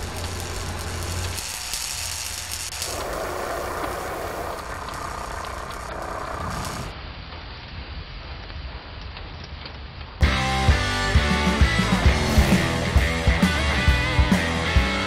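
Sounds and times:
sparks hissing from metal cutting: 0:00.0 - 0:07.0, 0:12.0 - 0:13.3.

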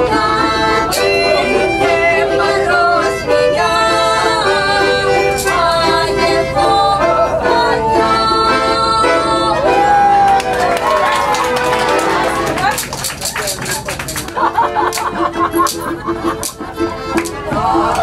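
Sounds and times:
women singing folk song: 0:00.0 - 0:09.9, 0:17.3 - 0:18.0
accordion: 0:00.0 - 0:18.0.

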